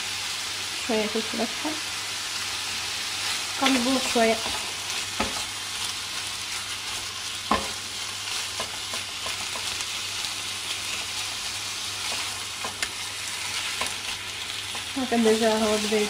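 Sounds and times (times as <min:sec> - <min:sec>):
meat sizzling in a pan: 0:00.0 - 0:16.0
spatula knocking on pan: 0:07.5 - 0:07.8.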